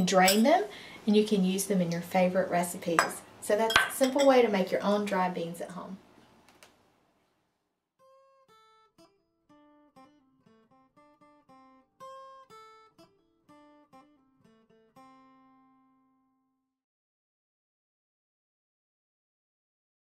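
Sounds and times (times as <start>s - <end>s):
slow guitar picking: 8.1s - 16.1s.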